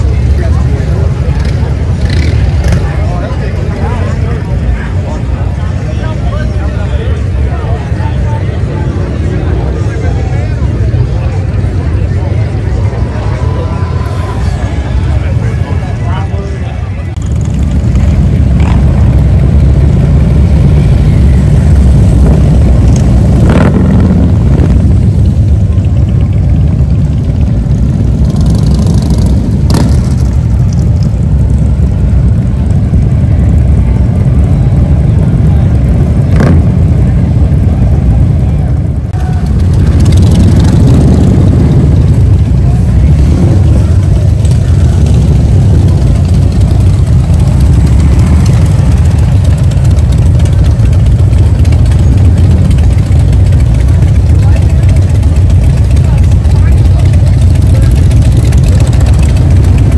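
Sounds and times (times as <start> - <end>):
motorcycle engines rumbling: 0.0 - 59.9.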